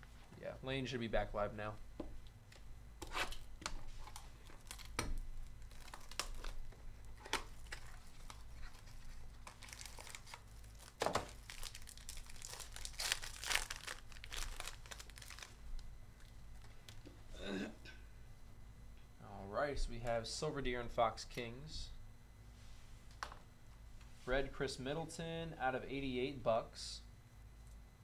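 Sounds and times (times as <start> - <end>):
foil card pack tearing and crinkling: 3.1 - 15.6.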